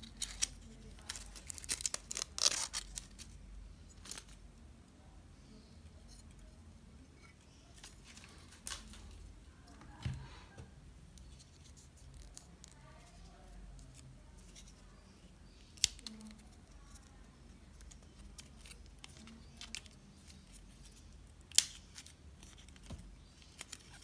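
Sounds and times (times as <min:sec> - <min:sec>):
plastic crackling and clicking: 0:00.0 - 0:03.4.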